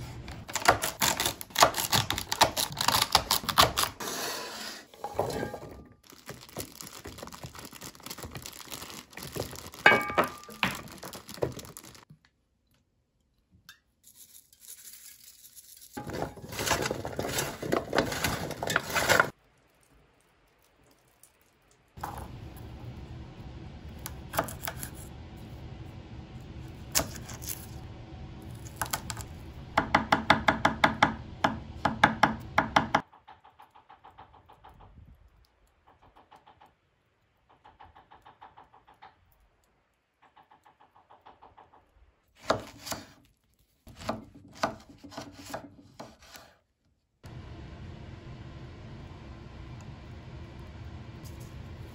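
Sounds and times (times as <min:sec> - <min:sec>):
dishes and pan clattering: 0:05.0 - 0:05.9, 0:09.9 - 0:10.8
knife chopping on cutting board: 0:42.4 - 0:43.2, 0:43.9 - 0:46.5.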